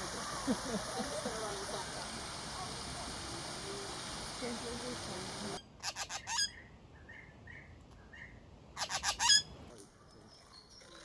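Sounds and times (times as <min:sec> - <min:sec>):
magpies squawking: 0:05.8 - 0:07.2, 0:08.8 - 0:09.5.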